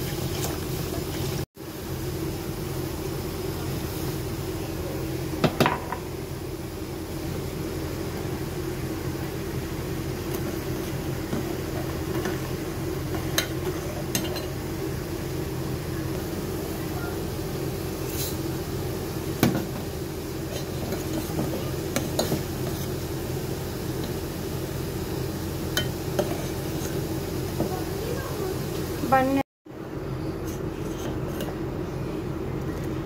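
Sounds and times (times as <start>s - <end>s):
ladle stirring in a steel pan: 20.4s - 23.1s, 25.8s - 27.1s.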